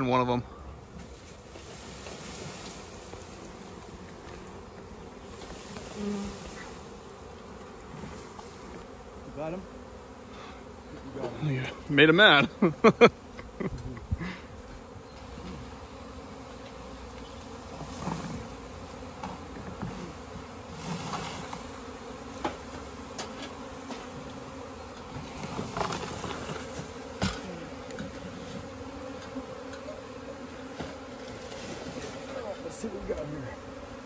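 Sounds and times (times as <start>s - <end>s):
bee swarm buzzing: 0.0s - 34.0s.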